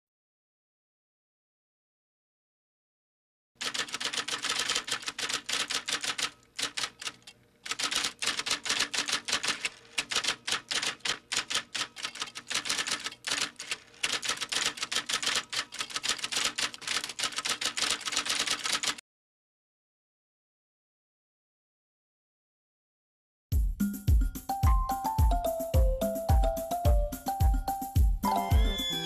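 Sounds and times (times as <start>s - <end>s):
typewriter key clacks: 3.6s - 19.0s.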